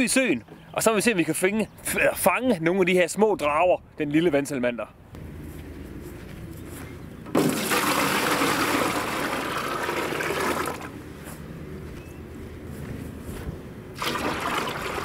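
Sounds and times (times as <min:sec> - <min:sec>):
water splashing into plastic tub: 0:07.3 - 0:10.9, 0:14.0 - 0:15.0.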